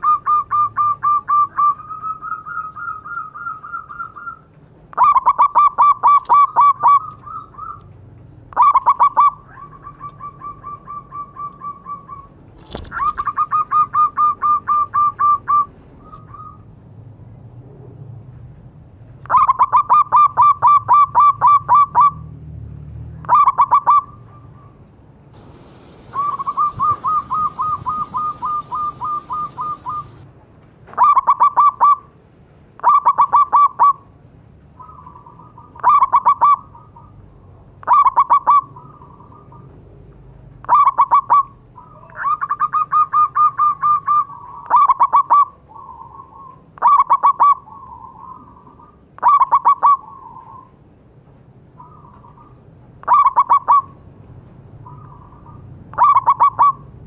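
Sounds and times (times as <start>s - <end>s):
dove cooing: 25.4s - 30.2s.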